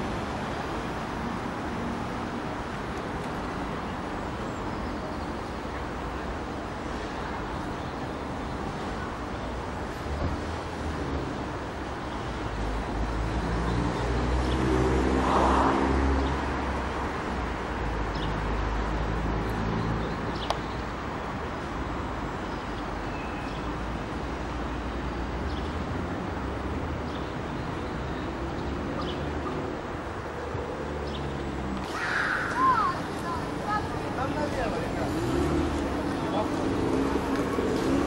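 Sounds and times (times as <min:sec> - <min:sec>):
background traffic hum: 0:00.0 - 0:38.0
car driving past: 0:13.4 - 0:16.7, 0:34.1 - 0:38.0.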